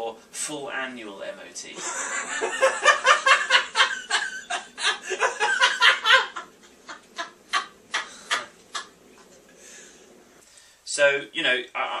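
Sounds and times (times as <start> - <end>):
man laughing: 1.8 - 9.4.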